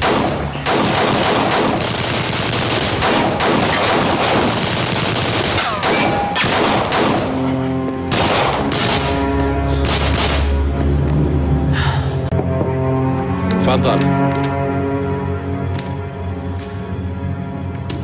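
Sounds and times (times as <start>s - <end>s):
dramatic music: 0.0s - 18.0s
handgun gunfire: 2.5s - 7.4s.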